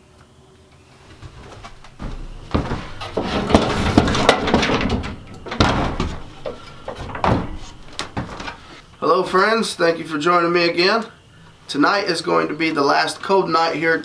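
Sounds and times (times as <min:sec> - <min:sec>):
wood knocking and scraping: 0:01.1 - 0:08.8.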